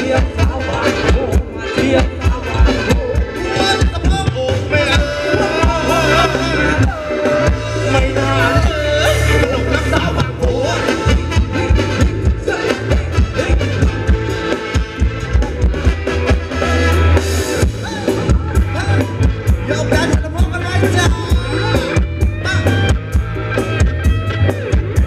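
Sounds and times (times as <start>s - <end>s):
person singing: 0.0s - 14.2s
drums: 0.0s - 25.0s
live band dance music: 0.0s - 25.0s
steady bass beat: 0.0s - 25.0s.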